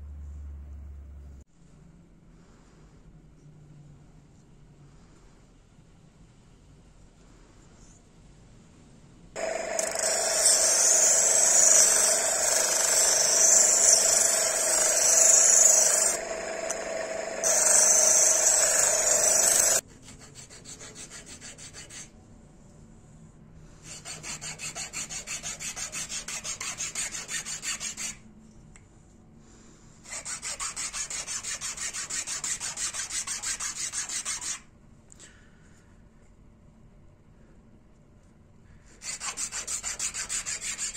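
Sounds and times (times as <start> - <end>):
sanding wheel whining: 9.4 - 19.8
filing on a steel file: 9.4 - 22.2, 23.8 - 28.3, 30.0 - 34.7, 38.9 - 40.9.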